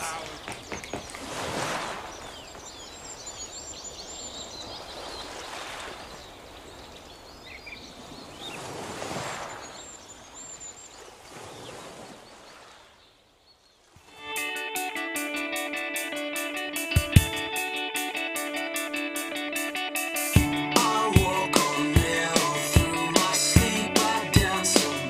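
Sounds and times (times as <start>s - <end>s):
birds chirping: 0.0s - 8.7s, 9.4s - 25.0s
strummed guitar music: 14.1s - 25.0s.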